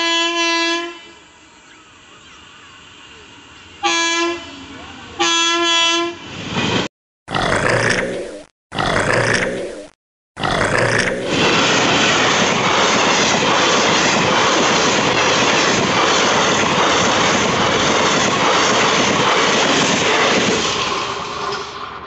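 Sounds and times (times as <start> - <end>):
train wheels rattling on rails: 10.8 - 22.0.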